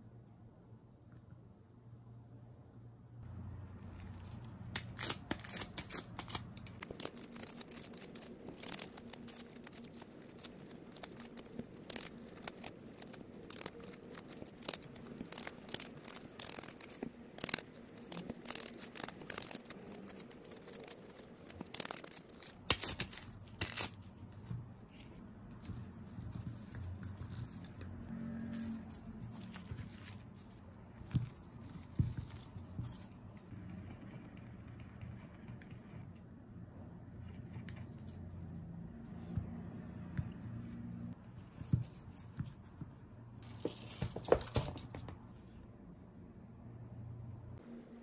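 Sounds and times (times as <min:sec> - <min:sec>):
tape peeling crackles: 0:03.9 - 0:33.2.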